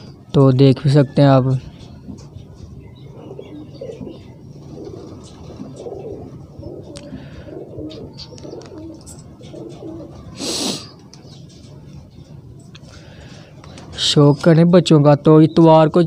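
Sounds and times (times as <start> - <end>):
pigeons cooing: 1.0 - 14.5
wings fluttering: 3.9 - 7.0.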